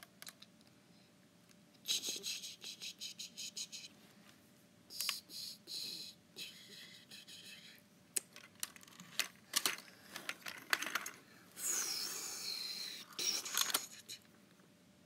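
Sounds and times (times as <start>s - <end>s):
plastic toy parts clicking: 8.2s - 11.2s, 13.2s - 13.9s.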